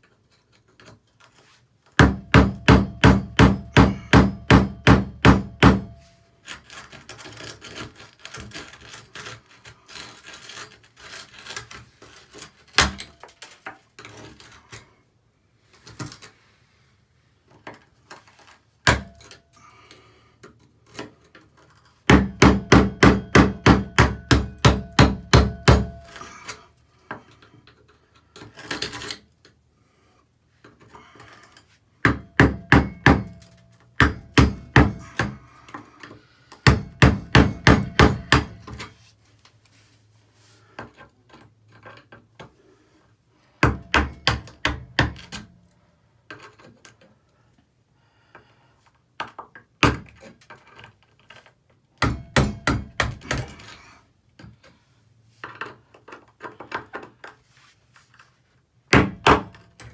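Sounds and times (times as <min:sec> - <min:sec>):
screwdriver chipping grout: 0:06.5 - 0:13.2.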